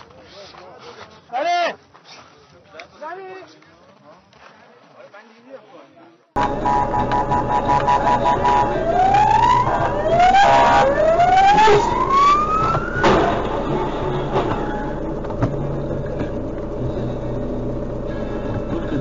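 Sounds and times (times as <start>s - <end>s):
rising whines: 6.4s - 19.0s
car collision bang: 12.3s - 15.6s.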